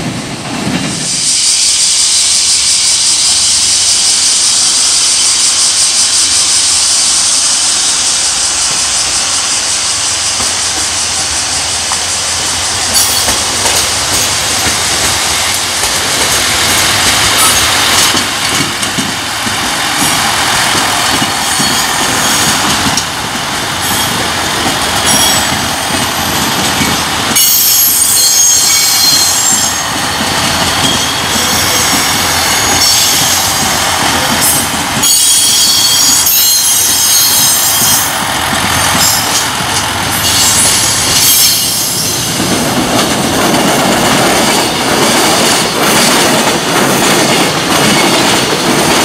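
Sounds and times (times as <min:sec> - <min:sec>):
freight train rumbling past: 0:00.0 - 0:49.0
wheels clacking over rail joints: 0:10.3 - 0:49.0
high-pitched wheel squeal: 0:21.4 - 0:22.8, 0:23.8 - 0:33.6, 0:34.4 - 0:38.2, 0:40.2 - 0:42.3.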